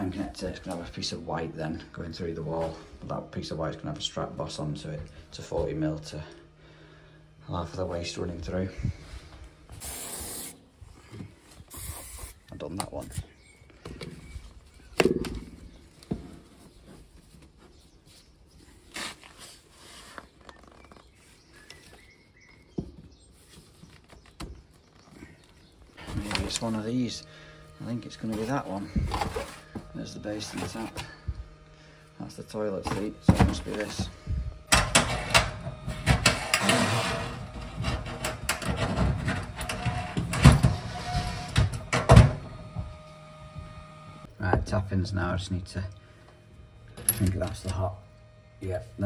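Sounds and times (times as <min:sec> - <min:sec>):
scraping on metal: 0:34.7 - 0:42.0.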